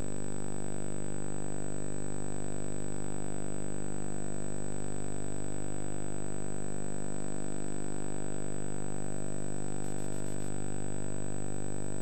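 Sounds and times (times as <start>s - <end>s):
electrical hum: 9.6s - 12.0s
thin high whine: 9.8s - 12.0s.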